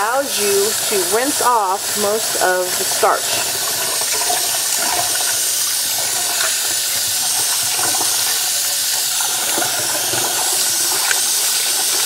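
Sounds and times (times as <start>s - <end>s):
tap water running into pot: 0.0s - 12.0s.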